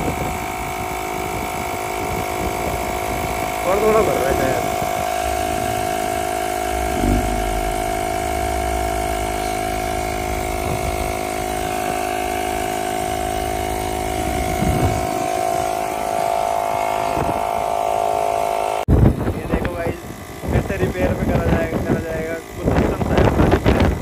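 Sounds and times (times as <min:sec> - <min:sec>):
air compressor humming: 0:00.0 - 0:18.8.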